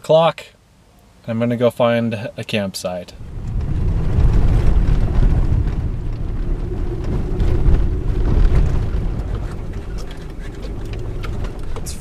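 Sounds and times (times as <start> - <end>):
tyres rumbling on dirt road: 3.1 - 12.0
grit and gravel ticks: 3.3 - 12.0.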